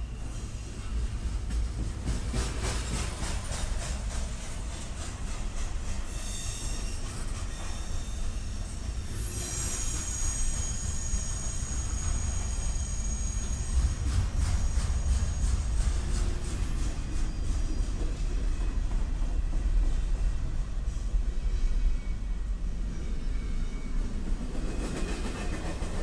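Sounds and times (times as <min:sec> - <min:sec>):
freight cars rumbling on rails: 0:00.1 - 0:26.0
high wheel squeal: 0:06.1 - 0:14.0.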